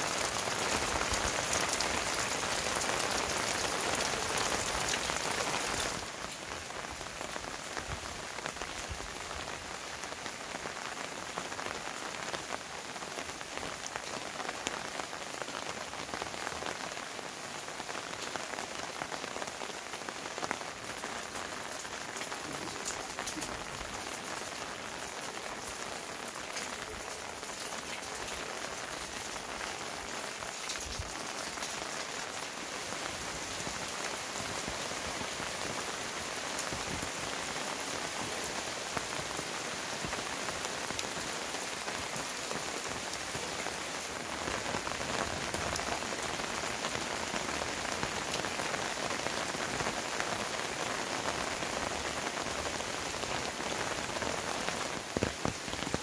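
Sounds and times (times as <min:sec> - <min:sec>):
heavy rain: 0:00.0 - 0:56.0.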